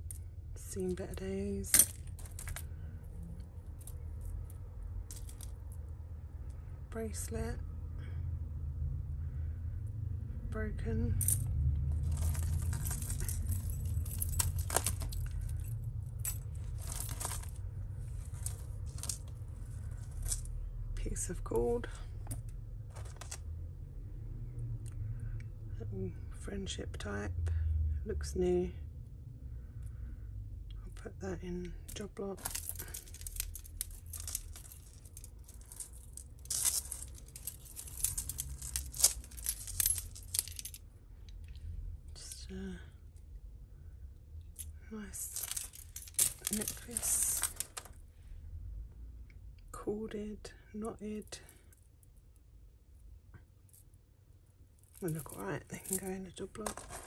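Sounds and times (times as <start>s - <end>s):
jewellery clinking and jangling: 0.0s - 7.6s, 10.7s - 23.6s, 31.7s - 43.2s, 44.4s - 48.1s, 50.8s - 52.4s, 53.4s - 57.0s
low steady hum: 0.0s - 57.0s.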